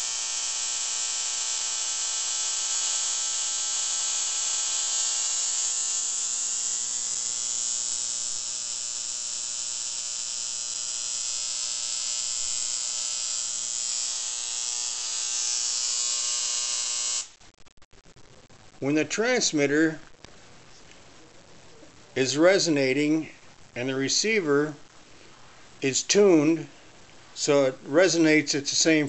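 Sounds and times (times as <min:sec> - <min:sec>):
spark gap buzzing and hissing: 0:00.0 - 0:18.1.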